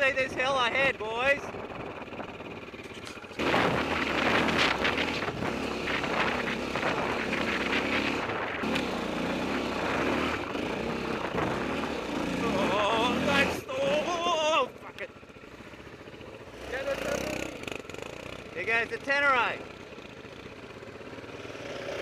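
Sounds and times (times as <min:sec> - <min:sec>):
motorcycle engine under load: 0:00.0 - 0:22.0
wind on microphone: 0:03.4 - 0:08.8.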